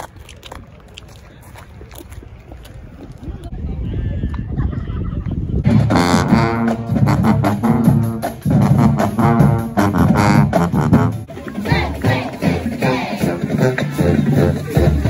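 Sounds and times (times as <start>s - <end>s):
marching band playing: 5.7s - 15.0s
sousaphone low brass line: 5.7s - 15.0s.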